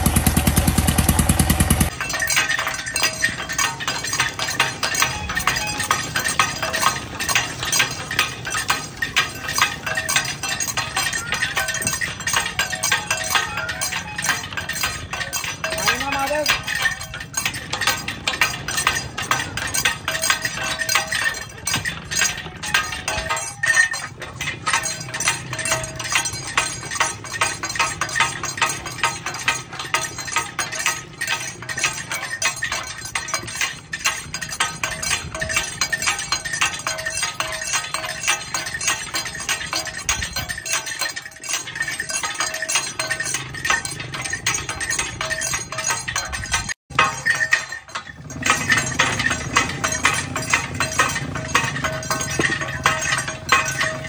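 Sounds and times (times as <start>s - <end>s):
cane juice crusher running: 0.0s - 1.9s
rapid metallic clinking: 0.0s - 54.0s.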